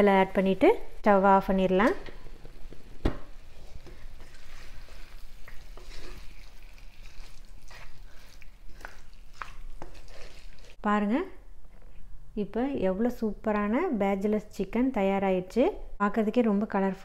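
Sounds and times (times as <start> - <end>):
faint sizzle: 0.0 - 10.8
wooden spatula scraping pot: 2.1 - 10.8.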